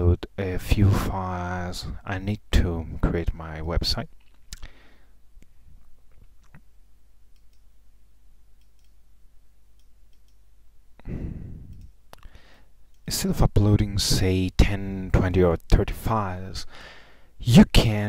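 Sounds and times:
low steady hum: 0.0s - 18.0s
computer mouse clicks: 7.3s - 7.7s, 8.6s - 9.0s, 9.8s - 10.4s, 11.7s - 12.3s.

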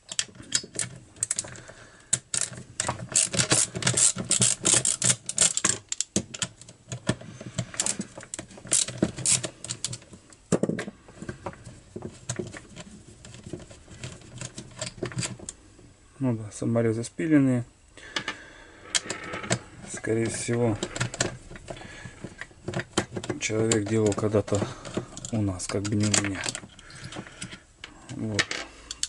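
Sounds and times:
hand tool clicking and scraping: 0.1s - 10.1s, 18.9s - 28.2s.

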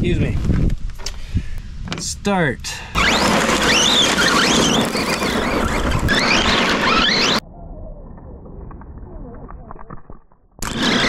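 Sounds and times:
electric motor whining: 3.0s - 7.4s
tyres spinning on gravel: 3.0s - 7.4s, 10.6s - 11.0s.

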